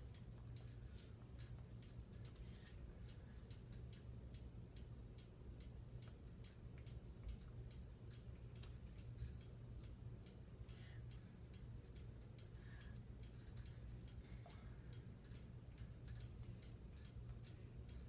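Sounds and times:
faint even ticking: 0.0s - 18.0s
low steady hum: 0.0s - 18.0s.

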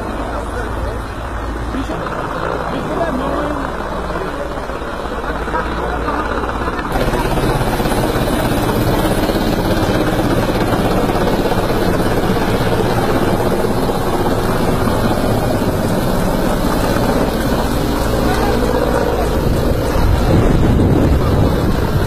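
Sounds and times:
helicopter rotor beating: 0.0s - 22.0s.

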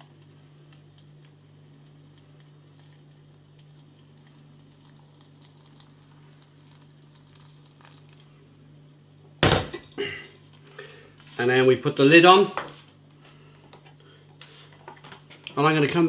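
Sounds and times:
water pouring from kettle: 4.2s - 8.3s
loud clunk: 9.4s - 9.9s.

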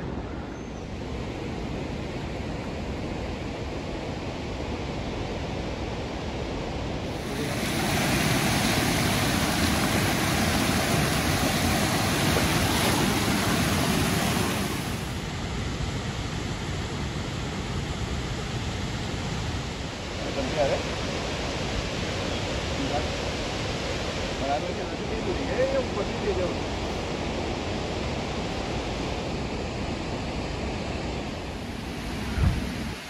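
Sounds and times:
stream rushing over rocks: 7.1s - 15.3s, 31.4s - 33.0s.

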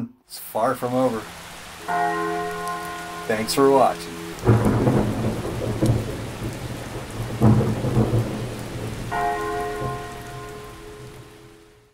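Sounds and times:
rain: 0.3s - 11.9s
rumbling thunder: 2.8s - 11.5s.

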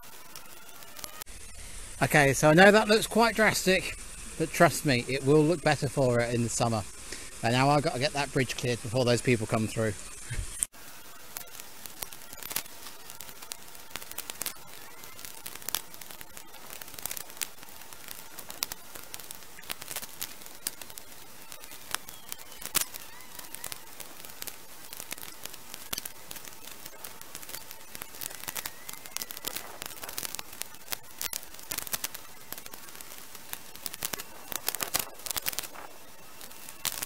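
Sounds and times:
twigs crackling and snapping: 11.3s - 37.0s.

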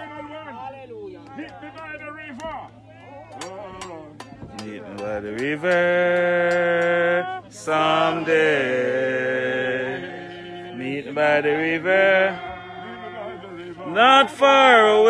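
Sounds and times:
voices singing a slow hymn: 3.0s - 15.0s.

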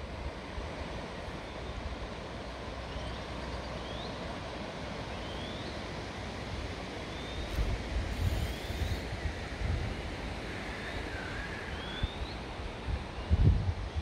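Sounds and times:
wind rumble on microphone: 7.4s - 14.0s.

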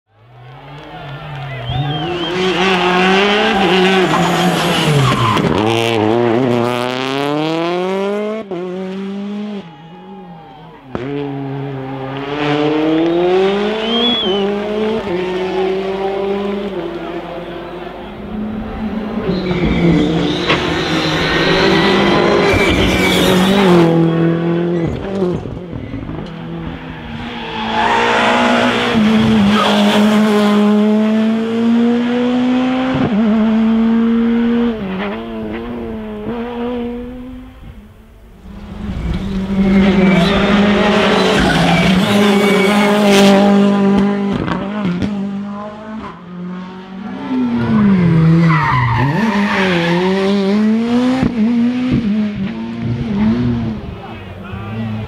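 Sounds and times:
rally car engines passing: 0.1s - 55.0s.

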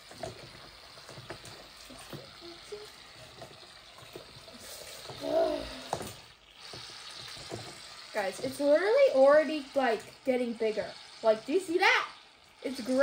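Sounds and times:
person humming: 5.2s - 5.9s.

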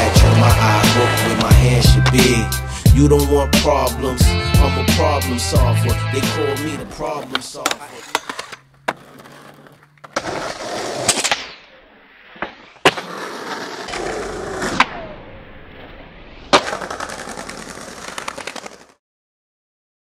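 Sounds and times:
skateboard clacking: 0.0s - 2.6s, 6.2s - 11.5s, 16.5s - 19.0s
skateboard wheels rolling on pavement: 0.0s - 19.0s.

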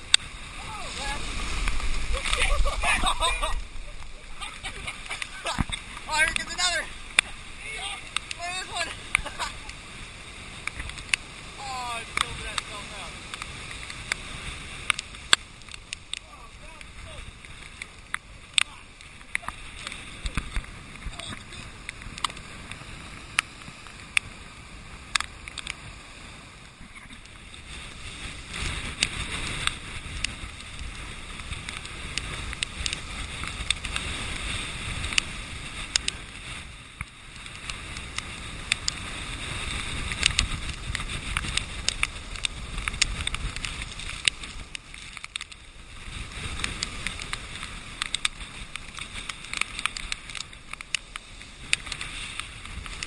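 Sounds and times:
surf crashing against seawall: 0.0s - 53.0s.

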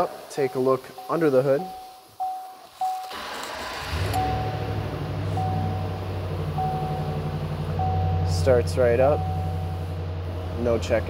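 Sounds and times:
dashboard warning chime: 0.4s - 3.2s, 4.1s - 4.7s, 5.3s - 8.4s, 9.0s - 9.8s
car engine starting and idling: 2.8s - 11.0s.

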